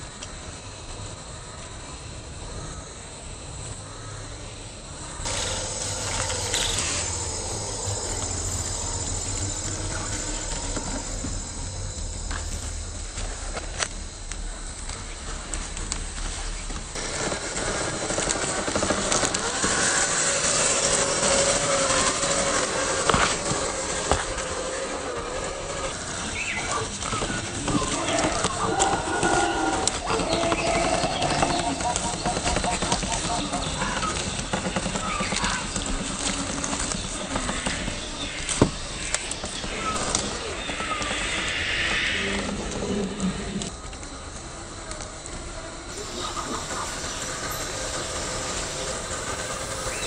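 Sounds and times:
electric motor whining: 5.2s - 32.0s, 44.7s - 50.0s
rc car tyres crunching leaves: 5.2s - 41.3s, 42.9s - 50.0s.

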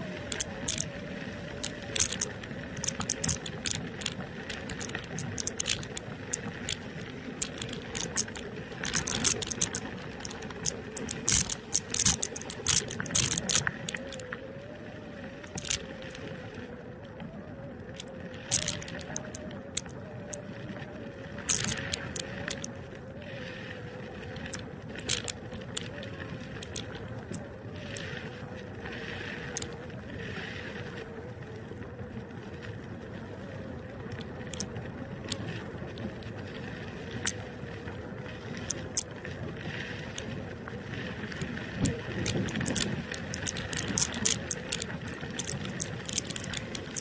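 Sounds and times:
rattles over bumps: 1.9s - 14.2s, 41.8s - 47.0s
tyre and wind noise: 38.7s - 47.0s.

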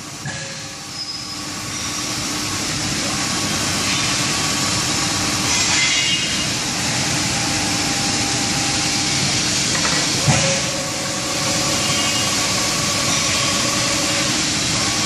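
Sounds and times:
milling machine cutting metal: 1.1s - 15.0s.

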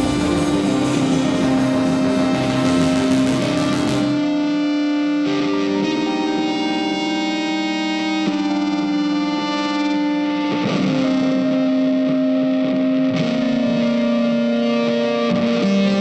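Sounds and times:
distorted electric guitar: 0.0s - 16.0s.

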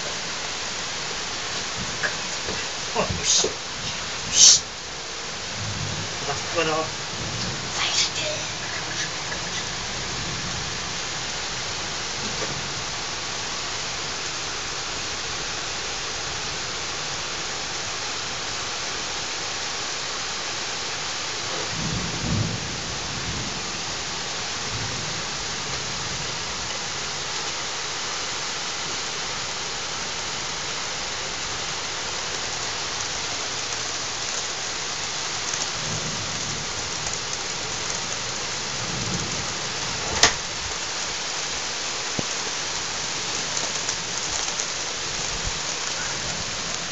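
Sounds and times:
thunder rumble: 0.0s - 14.0s, 21.5s - 26.7s, 35.3s - 40.8s
heavy rain hissing: 0.0s - 46.9s.

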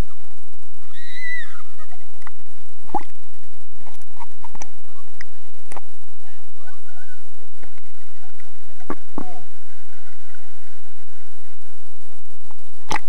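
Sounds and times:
underwater clicks and pops: 2.2s - 3.2s, 3.8s - 5.9s, 12.5s - 13.0s.

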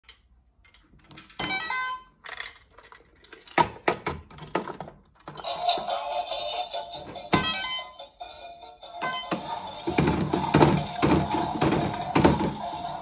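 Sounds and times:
toy electronic tune: 1.4s - 2.2s, 5.4s - 13.0s.

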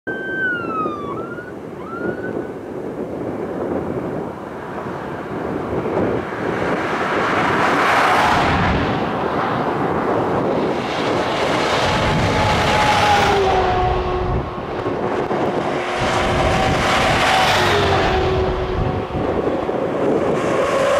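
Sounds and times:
siren sweeping up and down: 0.1s - 2.5s
steady siren or horn tones: 0.1s - 2.6s, 11.9s - 14.6s, 16.0s - 20.9s
wind on the microphone: 0.1s - 20.9s
heavy engines and tyres passing: 1.5s - 20.9s.

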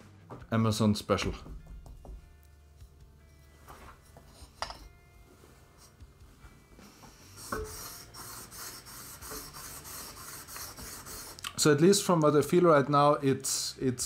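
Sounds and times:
knife scraping on whetstone: 4.0s - 4.8s, 7.2s - 11.4s.

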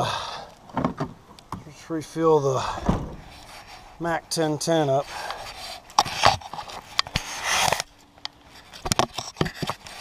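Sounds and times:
clicks knocks and scrapes of handling: 5.2s - 7.9s, 8.5s - 10.0s.

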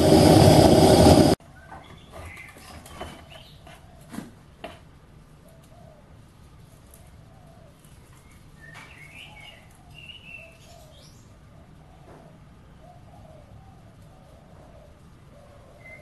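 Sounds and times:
faint birds calling: 6.8s - 16.0s.

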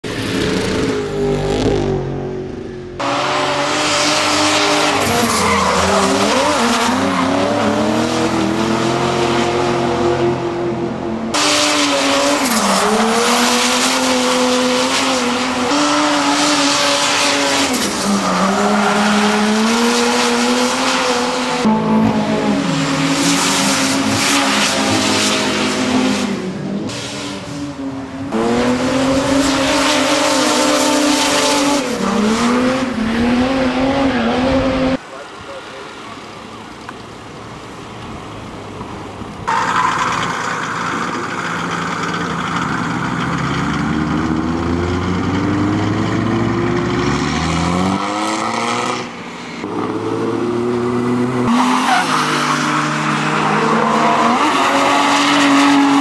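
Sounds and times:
diesel engine revving: 40.0s - 56.0s.

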